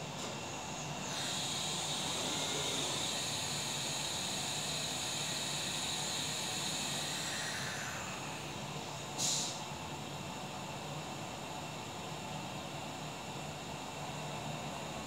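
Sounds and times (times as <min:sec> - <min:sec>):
machine spindle high-pitched whine: 0:00.0 - 0:10.3
hiss: 0:01.0 - 0:08.5, 0:09.1 - 0:09.7.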